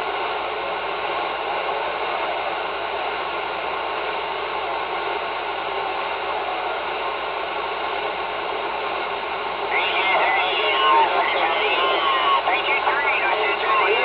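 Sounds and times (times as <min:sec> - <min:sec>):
radio static hiss: 0:07.9 - 0:14.0.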